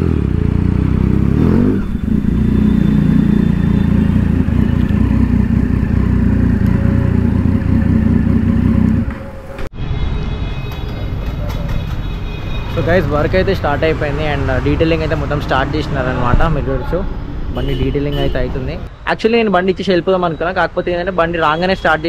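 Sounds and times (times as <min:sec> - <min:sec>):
motorcycle engine at low revs: 0:00.0 - 0:09.2.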